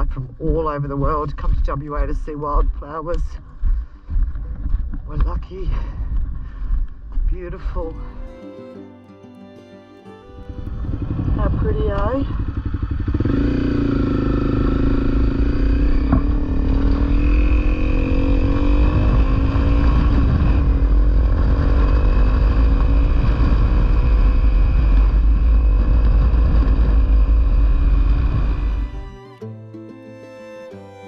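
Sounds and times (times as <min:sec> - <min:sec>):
wind rumble on microphone: 0:00.0 - 0:07.9, 0:10.4 - 0:29.0
motorcycle engine accelerating: 0:10.4 - 0:29.4.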